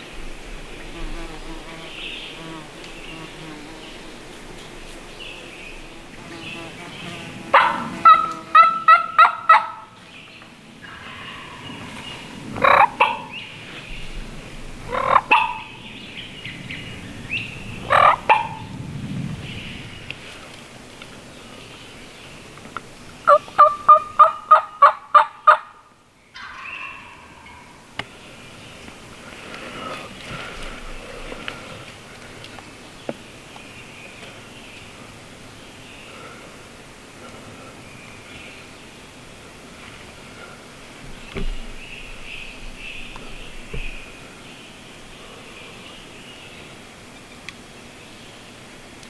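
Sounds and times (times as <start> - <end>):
turkey calls: 7.5 - 9.9, 10.8 - 13.5, 14.9 - 15.8, 17.8 - 18.7, 23.3 - 30.5.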